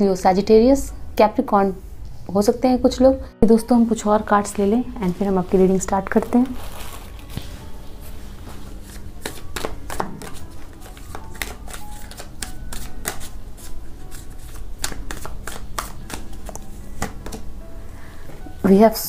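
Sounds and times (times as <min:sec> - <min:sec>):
cards being shuffled: 0:08.7 - 0:17.4.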